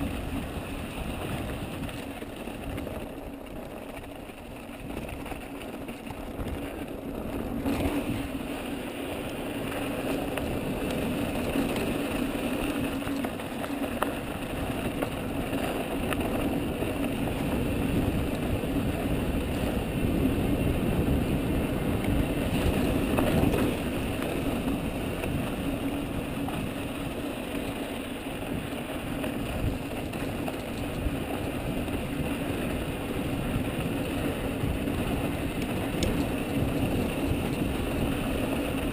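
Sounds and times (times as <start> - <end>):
wind on microphone: 0.0 - 13.5, 14.2 - 38.9
bike rattles and clicks: 0.0 - 38.9
bike tyres rolling on dirt: 0.0 - 38.9.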